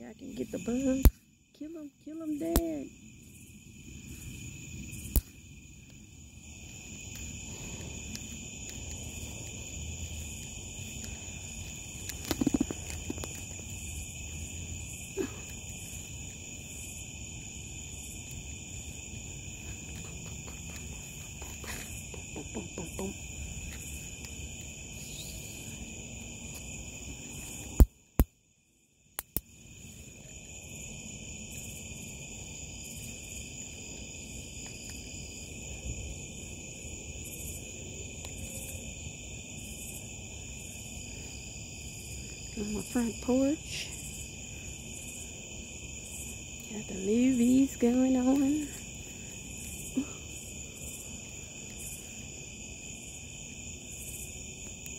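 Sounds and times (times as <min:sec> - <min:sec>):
crickets and night insects chirping: 0:00.0 - 0:54.9
sharp clicks: 0:29.2 - 0:29.5.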